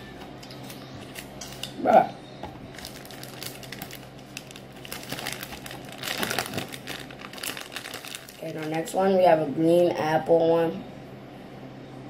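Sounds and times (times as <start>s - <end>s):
plastic wrapper crinkling: 2.7s - 9.2s.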